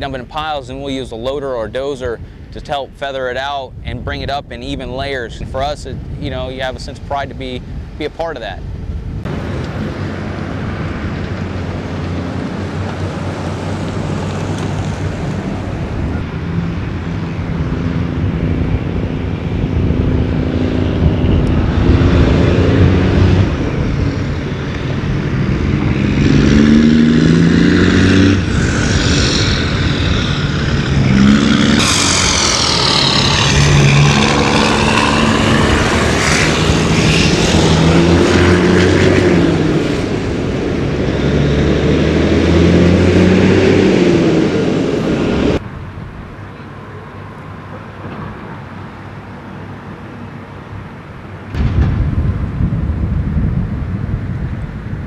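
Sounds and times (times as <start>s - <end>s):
diesel machinery revving: 9.2s - 45.6s.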